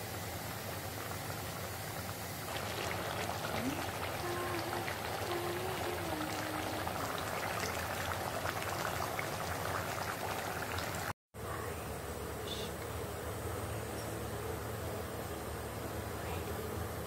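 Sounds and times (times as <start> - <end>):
curry bubbling in a wok: 0.0 - 11.2.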